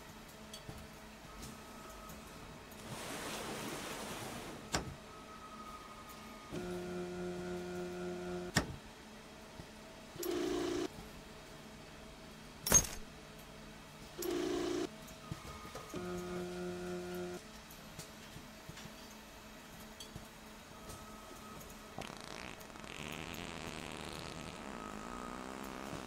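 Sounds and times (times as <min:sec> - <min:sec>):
steady hum: 0:06.4 - 0:08.6, 0:16.0 - 0:17.4
short buzzing bursts: 0:22.0 - 0:26.0.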